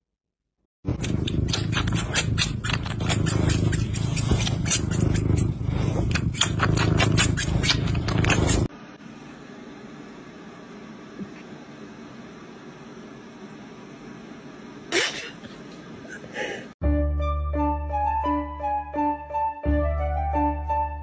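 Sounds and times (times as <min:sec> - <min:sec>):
cat teeth clicking: 0:01.0 - 0:05.5, 0:06.1 - 0:08.6.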